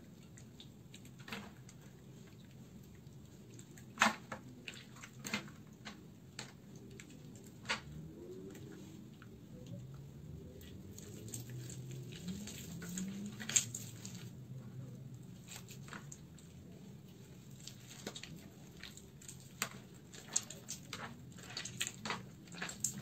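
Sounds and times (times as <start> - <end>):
wet soap squishing and crackling: 0.0 - 23.0.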